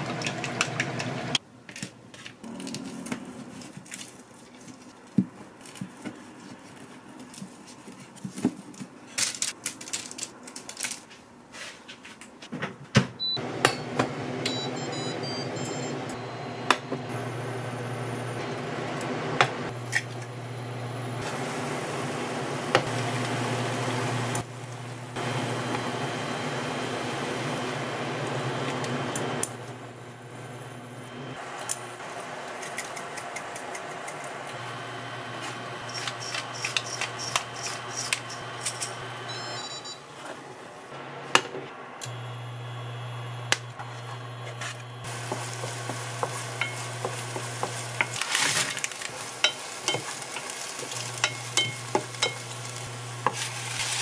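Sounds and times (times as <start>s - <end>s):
cooktop hum: 12.5s - 54.0s
short electronic beeps: 14.5s - 16.7s, 39.3s - 40.0s
water heating in pot: 42.0s - 54.0s
oil sizzling in frying pan: 45.0s - 54.0s.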